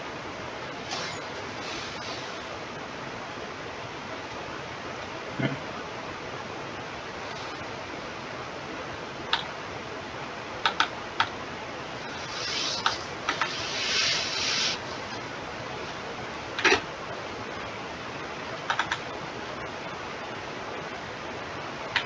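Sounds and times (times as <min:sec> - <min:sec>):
microphone hiss: 0:00.0 - 0:22.0
soft rushes of hiss: 0:00.8 - 0:02.8, 0:07.2 - 0:07.8, 0:12.0 - 0:15.2
sharp computer clicks: 0:10.6 - 0:11.4, 0:18.7 - 0:19.0.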